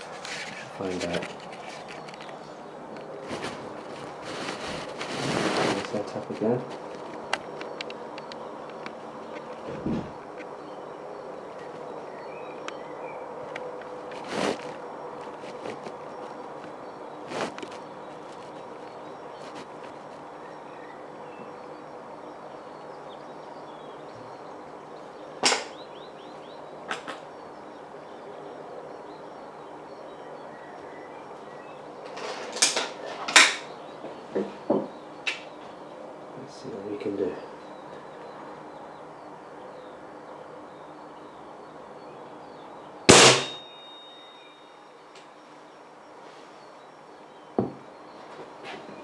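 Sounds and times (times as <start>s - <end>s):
outdoor background noise: 0.0s - 49.0s
air rifle shot: 43.1s - 43.6s
thin metallic ring: 43.1s - 45.0s.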